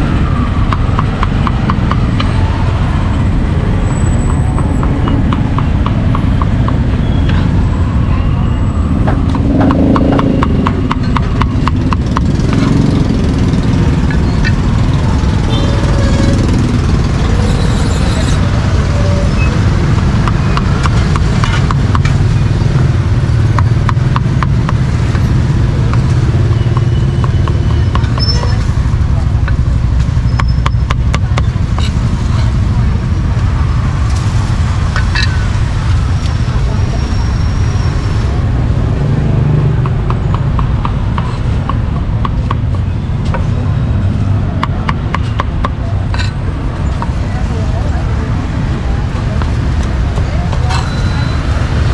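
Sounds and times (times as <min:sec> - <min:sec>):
street traffic rumble: 0:00.0 - 0:51.9.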